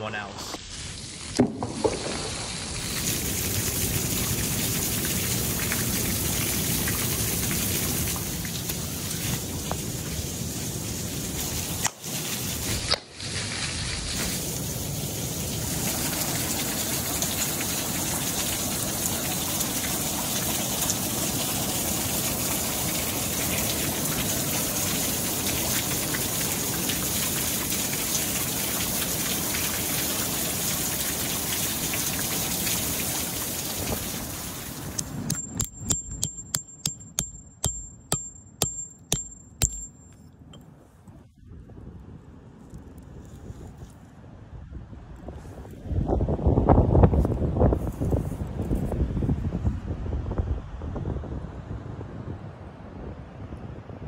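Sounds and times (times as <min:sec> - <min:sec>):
rushing water: 0:00.6 - 0:36.7
sharp ringing taps: 0:35.3 - 0:40.3.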